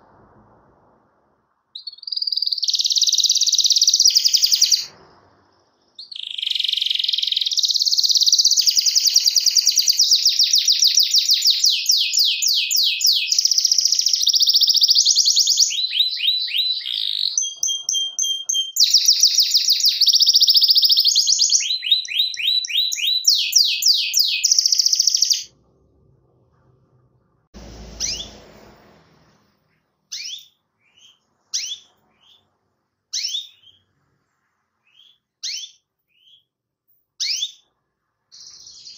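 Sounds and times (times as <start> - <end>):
canary singing trills: 1.8 - 4.9, 5.9 - 25.5, 30.1 - 34.0, 34.8 - 36.6, 37.2 - 37.7
canary whistle: 1.8 - 4.9, 6.0 - 25.5, 28.0 - 28.4, 30.1 - 32.5, 33.1 - 33.9, 34.8 - 36.5
short bird chirps: 1.8 - 25.5, 30.1 - 36.5
thump: 27.6 - 29.9.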